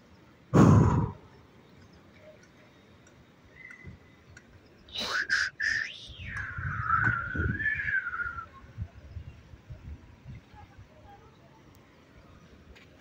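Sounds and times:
high whistling: 5.0s - 8.6s.

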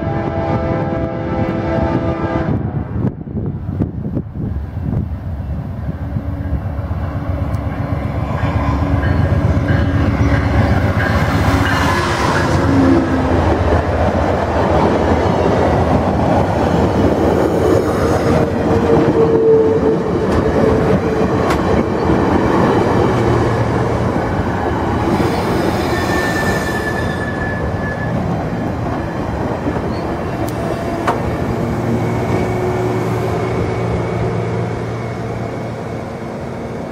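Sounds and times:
diesel locomotive passing: 0.0s - 36.9s
train wheels clicking over rail joints: 20.2s - 23.2s, 29.6s - 32.6s
metallic squeals: 25.2s - 28.4s.

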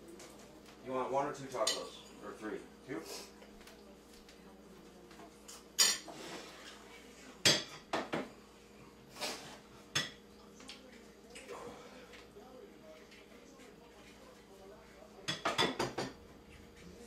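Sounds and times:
pans and dishes clinking: 5.4s - 6.8s, 7.4s - 8.4s, 9.9s - 10.2s, 15.2s - 16.3s.

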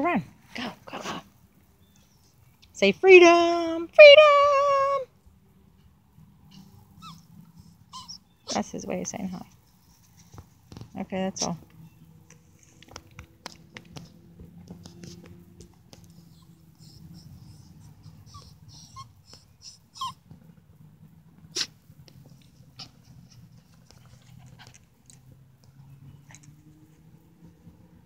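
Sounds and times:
puppy high squeaks: 6.5s - 8.6s, 16.0s - 20.2s
puppy snuffling in grass: 14.8s - 15.3s, 15.9s - 20.2s.

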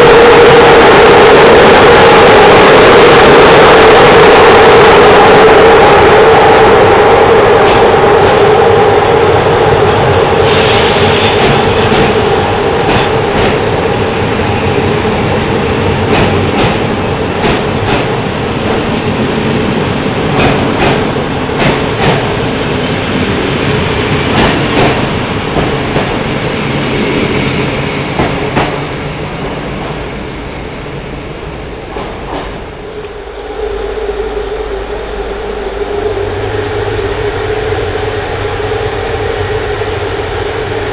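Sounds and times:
electric locomotive humming: 0.0s - 40.9s
train wheels clicking over rail joints: 10.4s - 30.1s, 31.8s - 33.2s.

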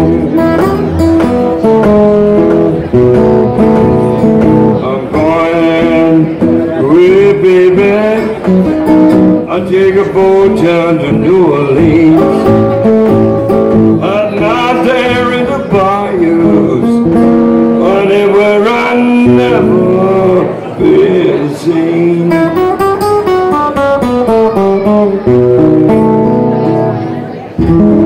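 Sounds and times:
man singing: 0.0s - 2.7s, 4.2s - 23.1s
resonator guitar blues: 0.0s - 28.0s.

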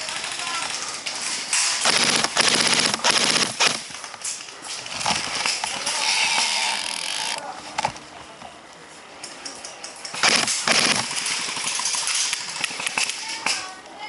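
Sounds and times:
airsoft guns firing full-auto: 1.7s - 4.0s, 10.2s - 13.2s.

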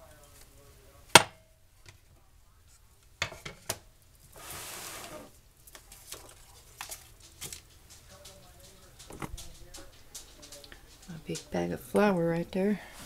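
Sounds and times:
kitchen clicks and knocks: 3.2s - 3.8s, 6.2s - 12.1s
hissing rustle: 4.2s - 11.5s.

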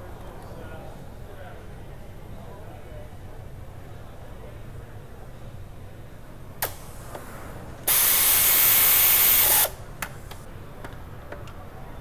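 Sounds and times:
pressurised spray hiss: 7.9s - 9.8s.

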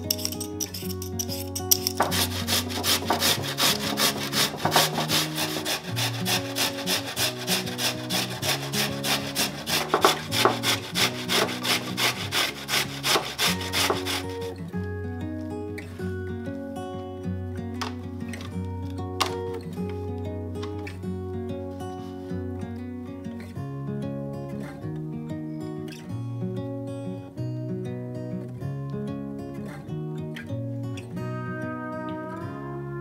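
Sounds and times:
soft background music: 0.0s - 25.8s, 28.9s - 33.0s
potato grating on metal grater: 0.1s - 14.5s.

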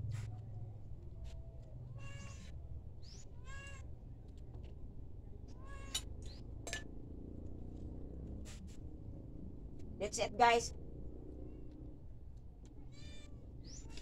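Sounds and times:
cat meowing: 1.9s - 2.5s, 3.3s - 3.9s, 5.5s - 6.0s, 12.8s - 14.0s.

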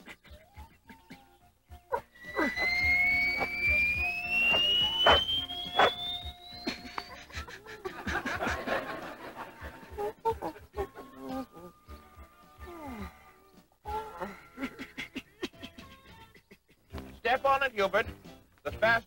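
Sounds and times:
busy background music: 0.0s - 19.0s
rising whistle-like tone: 2.1s - 7.3s.

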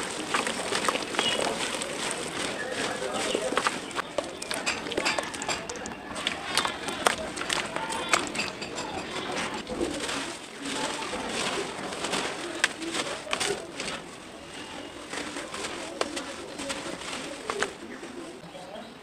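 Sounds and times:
sharp little cracks: 0.0s - 14.1s
hands crumbling dry dirt: 0.0s - 18.4s
pigeons cooing: 0.0s - 18.5s.

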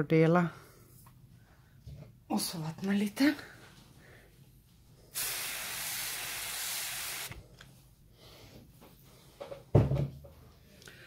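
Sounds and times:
pressure sprayer hissing: 5.2s - 7.4s.

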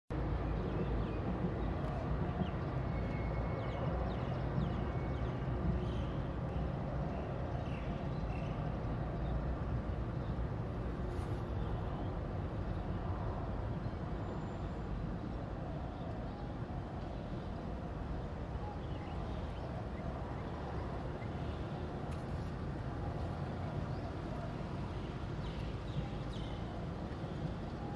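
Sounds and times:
distant city traffic rumble: 0.1s - 27.9s.

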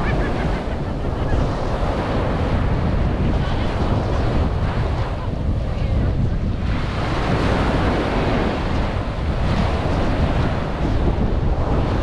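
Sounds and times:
surf washing up a beach: 0.0s - 12.0s
wind buffeting microphone: 0.0s - 12.0s.

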